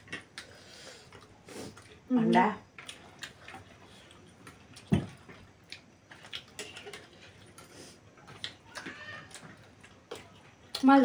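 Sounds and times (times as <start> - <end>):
chewing smacks: 2.8 - 11.0.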